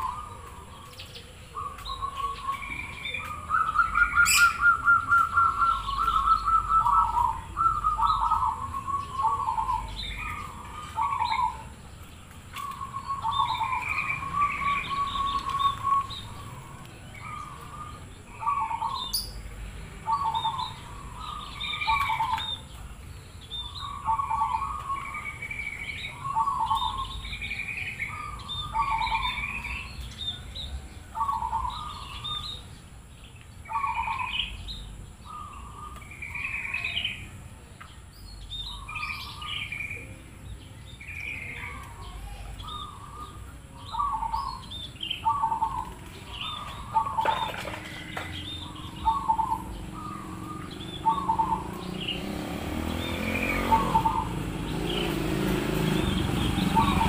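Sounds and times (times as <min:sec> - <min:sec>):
dove cooing: 0:00.0 - 0:11.7, 0:12.6 - 0:19.3, 0:20.0 - 0:22.6, 0:23.8 - 0:25.2, 0:26.1 - 0:30.4, 0:31.1 - 0:32.4, 0:41.5 - 0:57.0
high-pitched bird chirps: 0:00.0 - 0:11.8, 0:12.6 - 0:19.4, 0:23.6 - 0:30.4, 0:41.0 - 0:55.2, 0:55.9 - 0:57.0.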